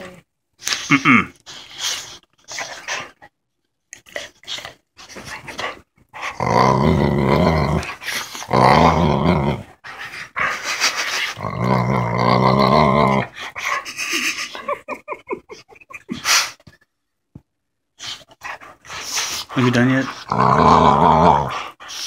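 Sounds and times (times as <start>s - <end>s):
puppy growling playfully: 5.4s - 10.6s, 11.3s - 13.9s, 19.6s - 21.8s.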